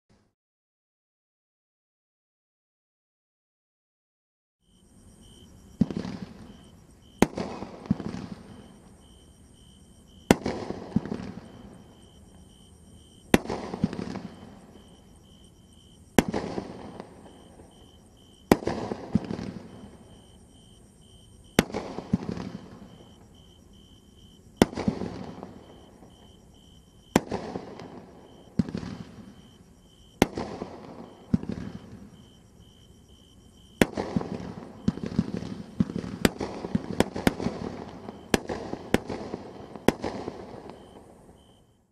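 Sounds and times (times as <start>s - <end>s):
fireworks shots: 5.7s - 20.7s, 21.4s - 23.5s, 24.6s - 26.4s, 27.0s - 32.4s, 33.7s - 41.7s.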